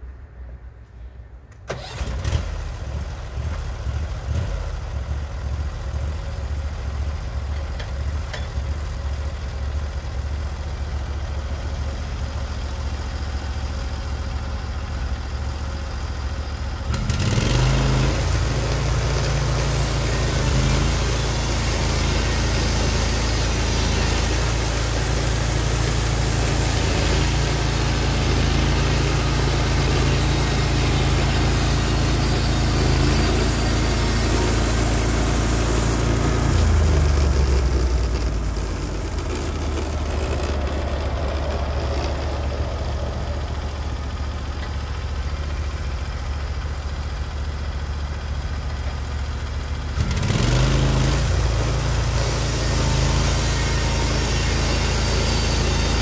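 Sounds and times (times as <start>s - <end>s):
sawmill engine running: 1.6s - 56.0s.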